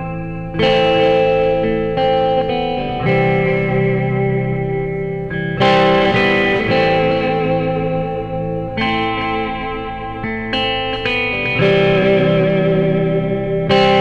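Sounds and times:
guitar strumming chords: 0.0s - 14.0s.

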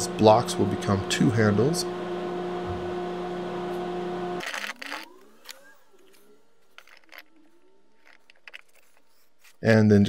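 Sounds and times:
machine hum: 0.0s - 9.0s.

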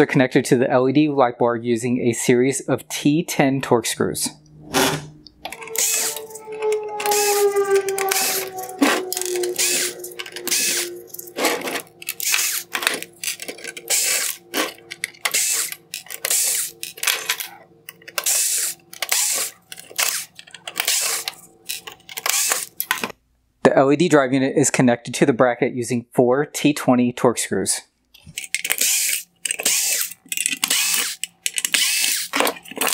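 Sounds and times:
electric screwdriver bursts: 4.7s - 17.2s, 18.1s - 23.1s, 28.6s - 32.9s.

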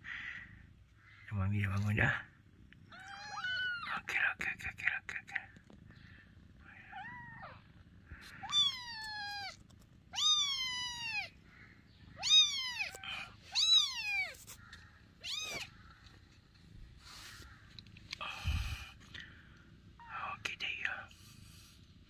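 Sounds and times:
kitten mewing: 6.8s - 11.4s, 12.2s - 14.6s, 15.2s - 15.8s.

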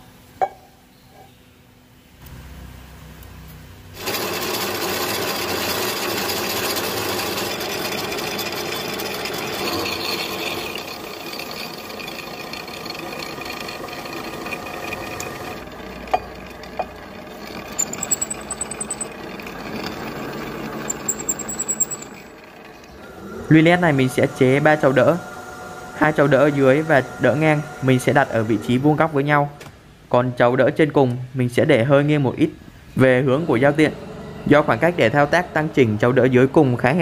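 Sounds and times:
milling machine cutting steel: 4.0s - 28.8s.

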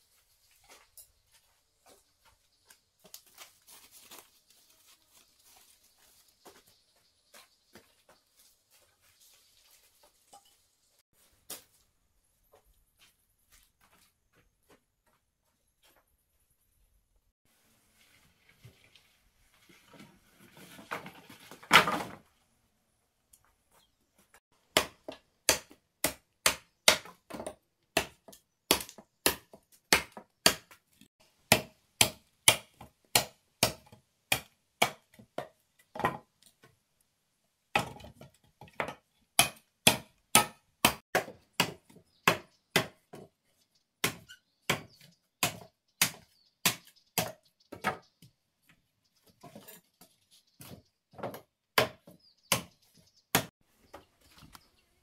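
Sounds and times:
blade chopping wood: 24.7s - 30.8s, 31.5s - 36.2s, 37.7s - 43.2s, 44.0s - 48.0s, 50.6s - 52.7s, 53.3s - 53.5s.

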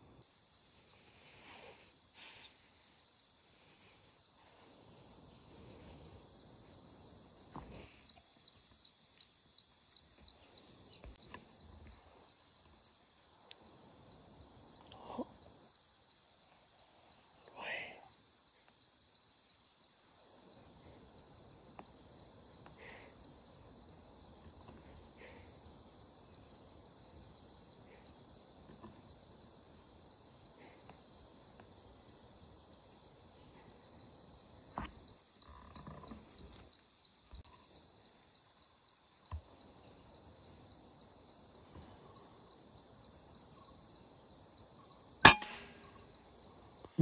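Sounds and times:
insect chorus: 0.0s - 47.0s
rifle shot: 45.3s - 45.8s.

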